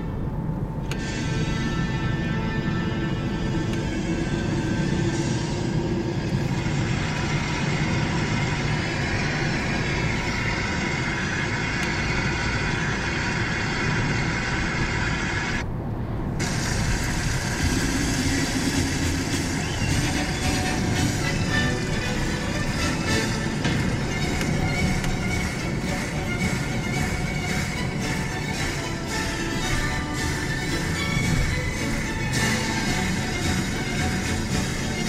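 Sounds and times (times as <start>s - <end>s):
car road and engine noise: 0.0s - 35.0s.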